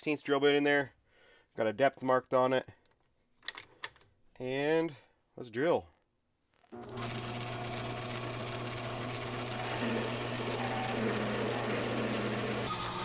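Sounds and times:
drill bit cutting metal: 6.8 - 13.0
lathe humming: 6.8 - 13.0.

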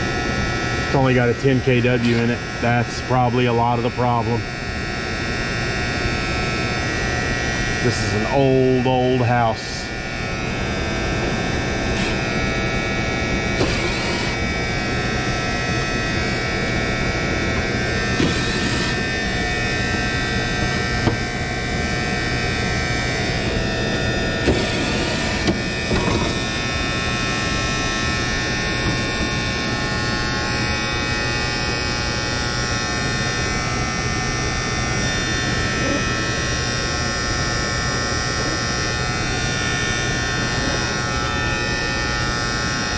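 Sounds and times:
contactor buzzing: 0.0 - 42.9
brief tool whirs: 13.4 - 14.5, 18.1 - 19.1.

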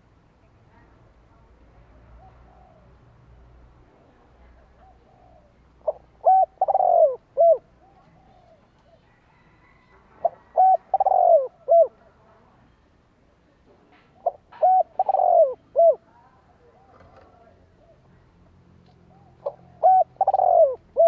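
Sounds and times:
dove cooing: 2.2 - 3.0, 4.6 - 9.5, 10.1 - 12.0, 14.2 - 18.2, 19.0 - 21.0.

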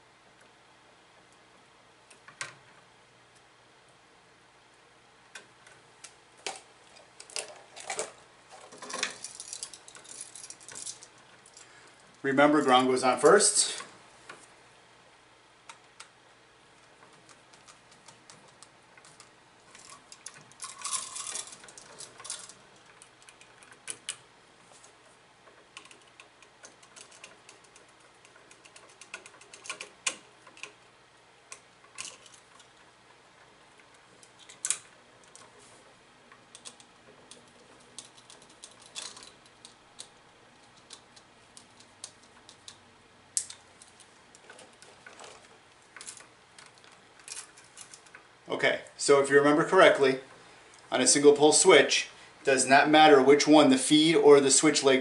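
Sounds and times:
wires and switch clicking: 15.6 - 16.2, 16.8 - 24.3, 25.6 - 30.9, 31.5 - 35.5, 36.3 - 48.2.

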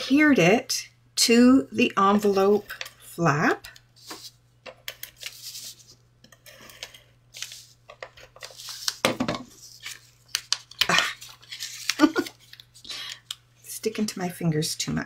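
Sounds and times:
paper rustling and sliding: 4.0 - 4.4, 5.0 - 12.9.

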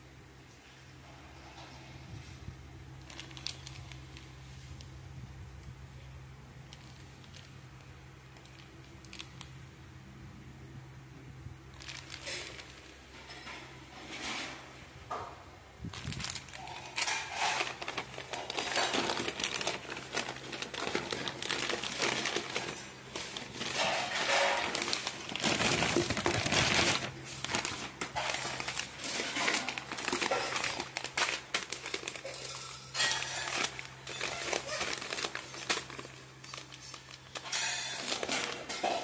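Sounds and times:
plastic bag crinkling: 2.9 - 4.8, 6.6 - 9.5, 11.7 - 13.6, 15.8 - 39.0.

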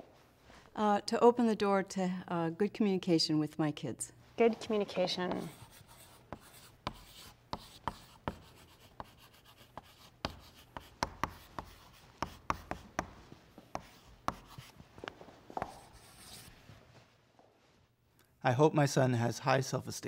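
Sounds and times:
chalk writing on blackboard: 5.3 - 14.8, 15.5 - 16.6.

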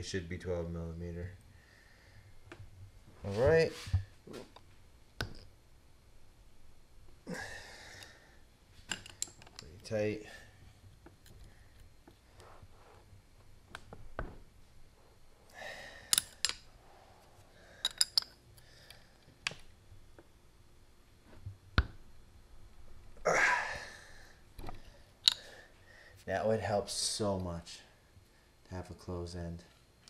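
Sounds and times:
wrench clicking on metal nuts: 16.1 - 16.6, 17.8 - 18.4, 25.2 - 25.4.

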